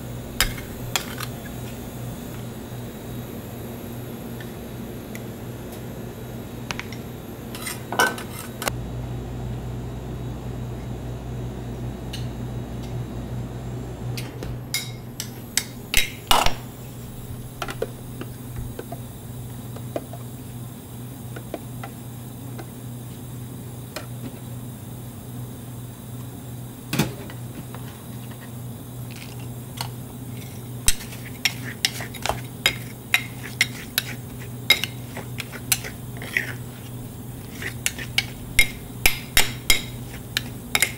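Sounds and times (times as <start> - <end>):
low hum: 0.0 - 7.4, 8.6 - 19.8, 36.7 - 40.9
metal spades tapping stone slab: 37.9 - 40.9.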